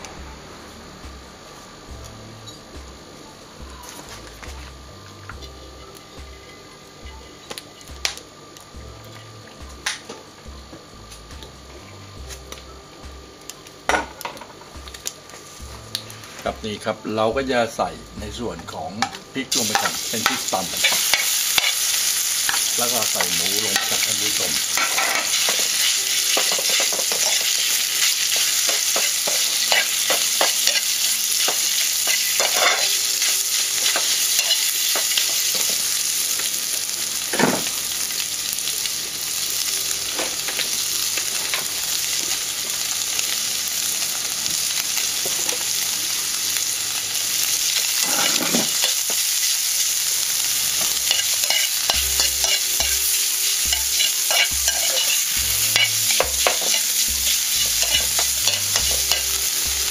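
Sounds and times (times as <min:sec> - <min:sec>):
meat sizzling in a frying pan: 0:03.7 - 0:59.9
metal spatula scraping a pan: 0:48.0 - 0:48.9.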